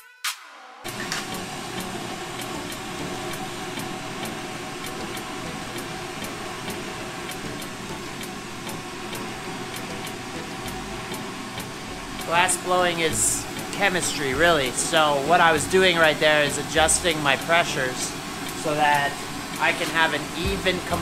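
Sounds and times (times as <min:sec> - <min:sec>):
music: 0:00.0 - 0:21.0
light regular ticking: 0:01.8 - 0:21.0
torch flame hissing: 0:11.8 - 0:21.0.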